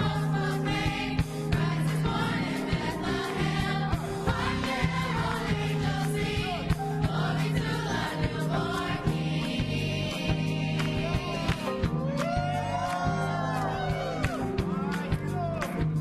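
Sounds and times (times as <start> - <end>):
children's choir singing: 0.0 - 11.7
backing track with steady beat: 0.0 - 16.0.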